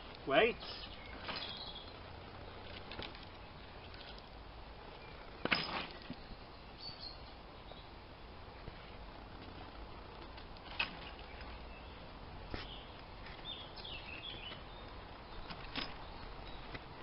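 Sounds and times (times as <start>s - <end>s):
birds chirping faintly: 0.0s - 17.0s
logs knocking together: 5.4s - 6.2s.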